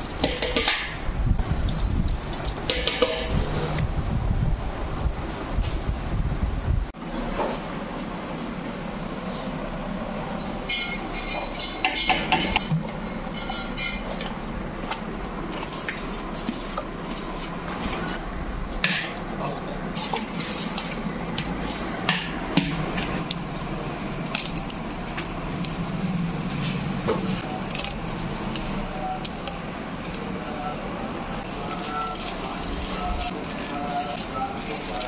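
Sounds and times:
wet squishing of stirred mixture: 0:01.6 - 0:03.0.

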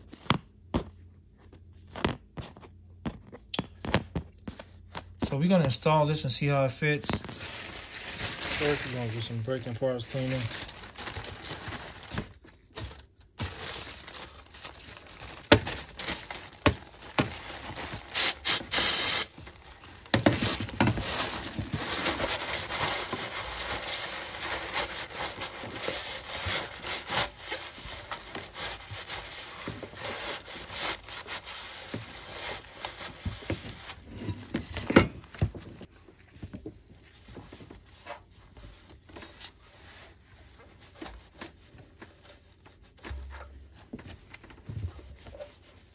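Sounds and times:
shop towels rubbing and wiping: 0:18.1 - 0:19.3
spray cleaner hissing: 0:18.1 - 0:19.3.

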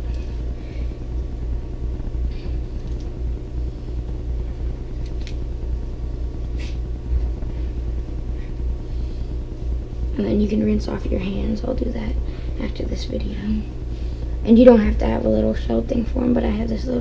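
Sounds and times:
low rumble and hum: 0:00.0 - 0:17.0.

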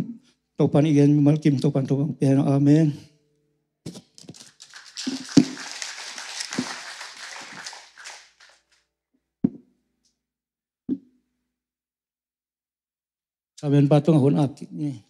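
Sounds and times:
paper rustling: 0:03.9 - 0:08.8.

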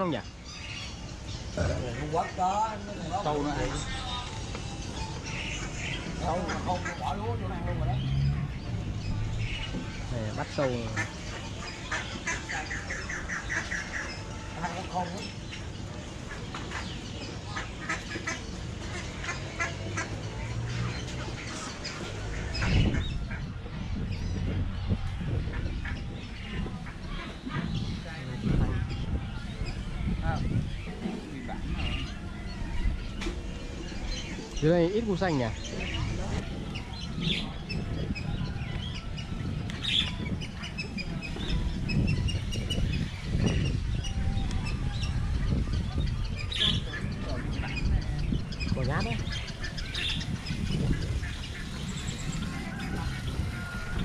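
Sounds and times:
many birds chirping: 0:00.0 - 0:54.0
ducks quacking: 0:01.5 - 0:04.3, 0:05.3 - 0:08.1, 0:10.4 - 0:14.4, 0:16.2 - 0:23.6, 0:25.3 - 0:28.9, 0:46.5 - 0:54.0.

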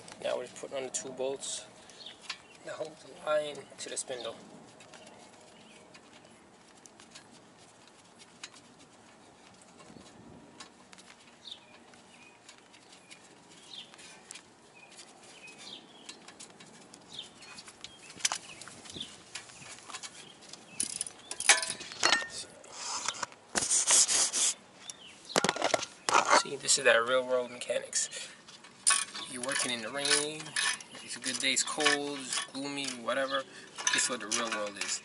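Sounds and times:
birds calling faintly: 0:00.0 - 0:23.4, 0:24.3 - 0:35.0
phone handling rustling and knocking: 0:25.3 - 0:26.4
hand tools clicking: 0:28.8 - 0:35.0.

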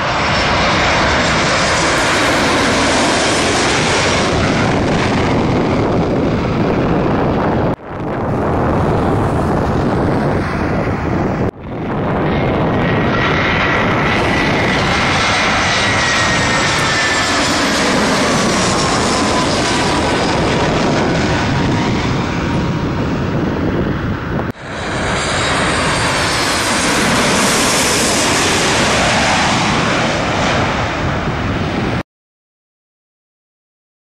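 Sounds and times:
jet airliner roaring overhead: 0:00.0 - 0:32.0.

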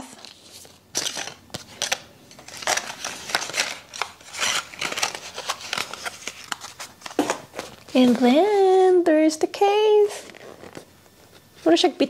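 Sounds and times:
packaging rustling and crinkling: 0:00.0 - 0:08.9, 0:09.9 - 0:11.8.

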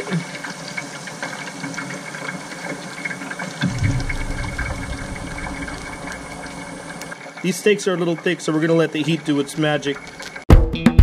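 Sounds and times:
fish frying in oil: 0:00.0 - 0:10.4
low rumble: 0:03.6 - 0:07.1.

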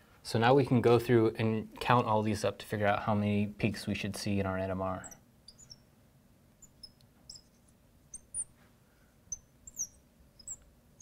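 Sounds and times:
marker squeaking on glass: 0:05.0 - 0:06.0, 0:06.6 - 0:08.6, 0:09.3 - 0:11.0.

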